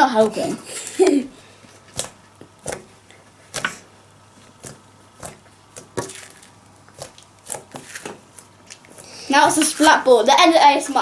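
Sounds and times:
fingertips patting sticky slime: 0:01.8 - 0:09.0.

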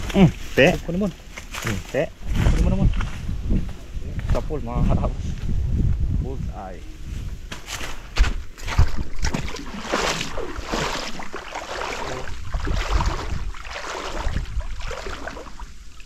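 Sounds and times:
wind rumbling on microphone: 0:00.0 - 0:16.0
water splashing and sloshing: 0:07.5 - 0:16.0.

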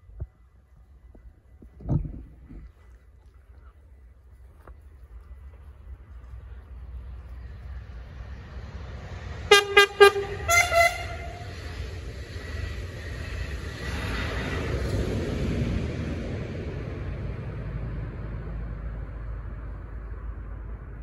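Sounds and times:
passing train rumble: 0:00.0 - 0:21.0
train horn blasts: 0:09.4 - 0:11.8.

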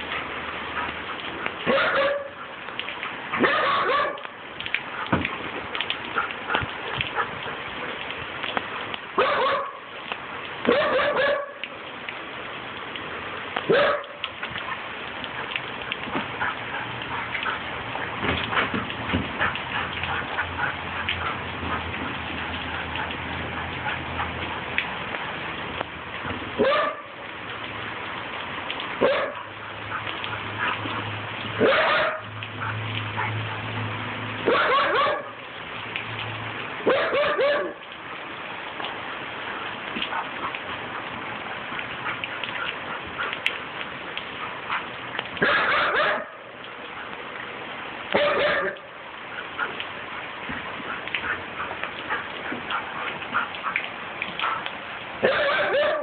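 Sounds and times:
rain on wooden deck: 0:00.0 - 0:56.0
puppy barking: 0:01.6 - 0:02.5, 0:03.4 - 0:04.3, 0:09.2 - 0:09.9, 0:10.6 - 0:11.7, 0:13.7 - 0:14.3, 0:26.6 - 0:27.2, 0:29.0 - 0:30.0, 0:31.6 - 0:33.6, 0:34.4 - 0:35.4, 0:36.8 - 0:37.8, 0:40.0 - 0:40.6, 0:44.7 - 0:46.5, 0:48.1 - 0:48.9, 0:54.4 - 0:56.0
light taps and clicks: 0:04.1 - 0:09.0.

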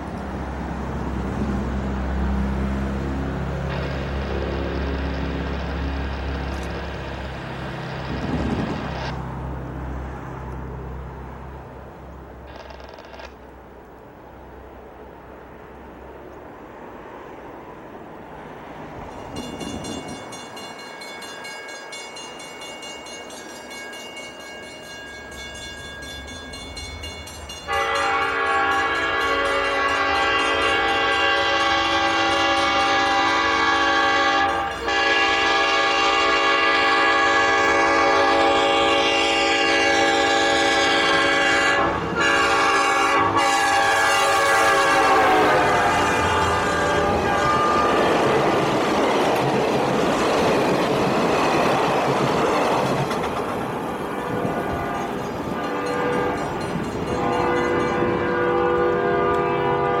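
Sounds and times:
train rumble and wheel clatter: 0:00.0 - 1:00.0
train air horn blasts: 0:27.7 - 0:48.3, 0:54.2 - 1:00.0.

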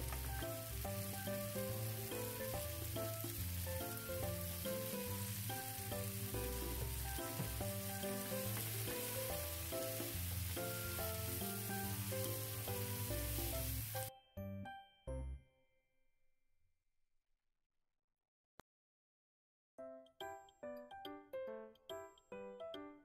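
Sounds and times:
vegetables sizzling in oil: 0:00.0 - 0:14.1
background music: 0:00.0 - 0:15.4, 0:19.8 - 0:23.0.

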